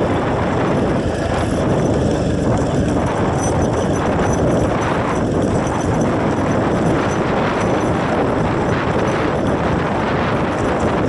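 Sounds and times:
motorcycle rumbling: 0.0 - 11.0
wind noise on microphone: 0.0 - 11.0.

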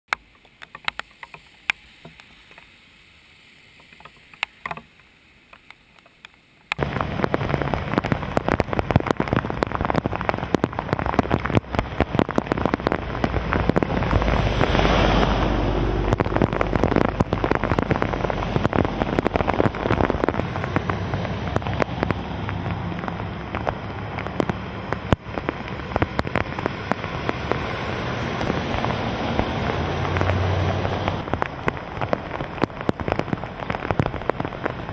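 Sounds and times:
raindrop ticks: 0.1 - 2.8, 3.7 - 34.9
vehicles splashing through water: 0.1 - 34.9
heavy rain pouring on road: 3.4 - 34.9.

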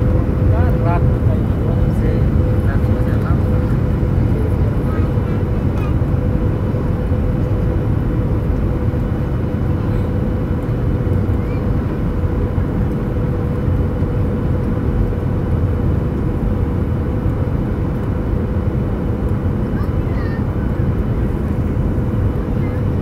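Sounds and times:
jet engine rumble: 0.0 - 23.0
steady cabin hum: 0.0 - 23.0.

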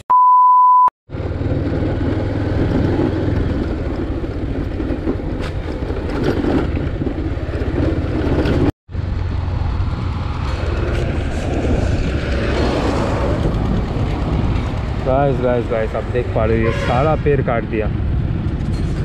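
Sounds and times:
test-tone beep: 0.0 - 0.9
road rumble: 1.1 - 19.0.

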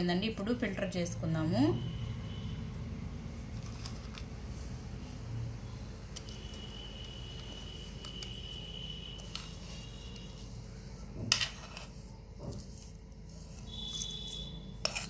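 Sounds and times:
faint high-pitched tone: 5.4 - 11.0
spoon scraping a metal pan: 6.3 - 15.0.

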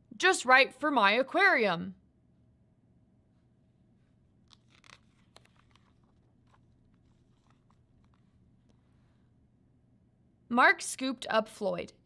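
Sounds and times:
paper page turning and crackling: 4.4 - 8.8.

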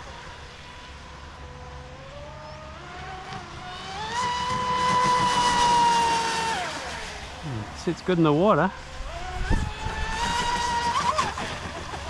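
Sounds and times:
rc boat electric motor whine: 0.0 - 12.0.

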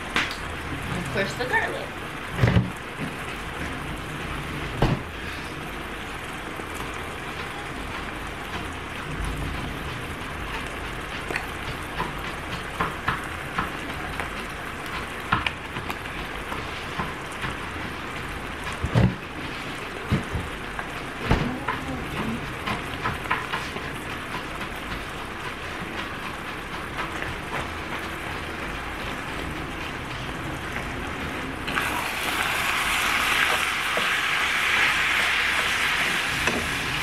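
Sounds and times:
meat sizzling in a skillet: 31.7 - 37.0.

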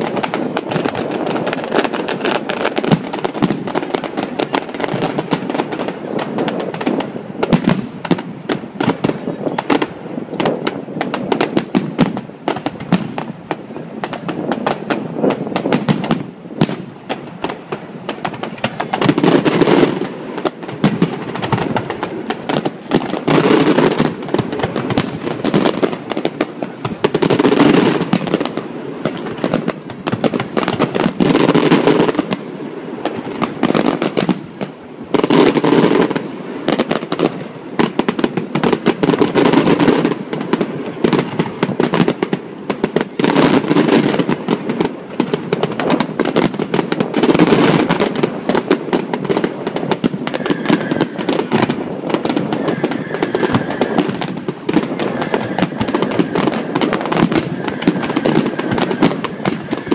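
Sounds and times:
fireworks bangs and crackles: 0.0 - 59.9
faint high whistling: 50.3 - 51.7, 52.4 - 59.9.

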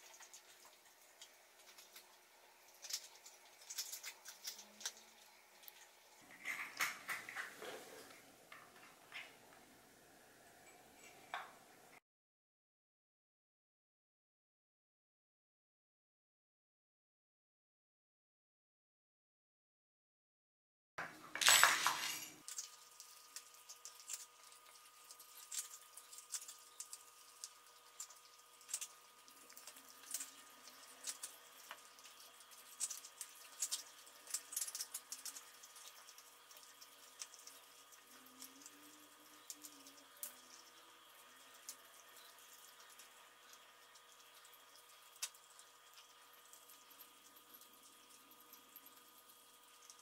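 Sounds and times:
faint steady hum: 0.0 - 12.0, 21.0 - 50.0
kibble poured into dish: 21.3 - 22.7.

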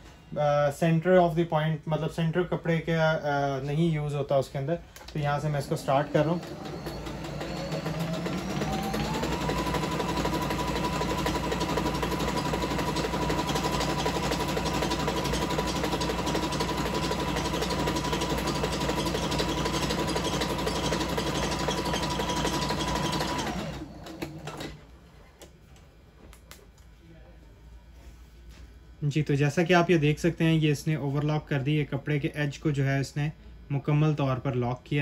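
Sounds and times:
sewing machine running: 5.2 - 24.8.

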